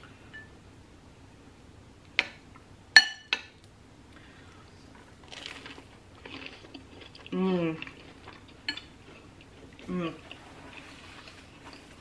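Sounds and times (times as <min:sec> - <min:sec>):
crunch of sandwich bite: 0:05.2 - 0:08.1.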